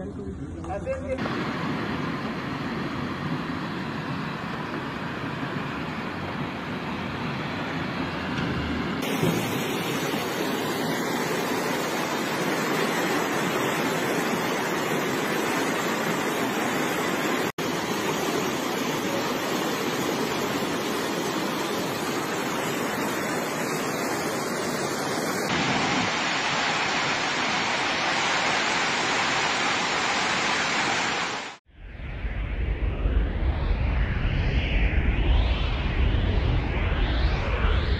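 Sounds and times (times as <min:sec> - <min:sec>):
floodwater rushing through street: 0:09.0 - 0:31.6.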